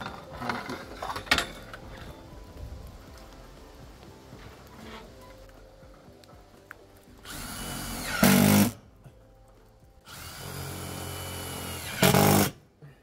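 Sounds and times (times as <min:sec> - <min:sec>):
power drill drilling into metal: 0:07.3 - 0:08.8, 0:10.1 - 0:12.6.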